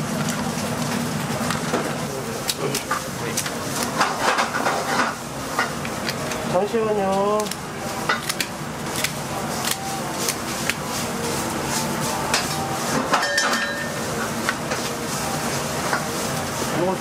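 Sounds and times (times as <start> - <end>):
steady background noise: 0.0 - 17.0
scissors snipping shells: 7.4 - 10.8.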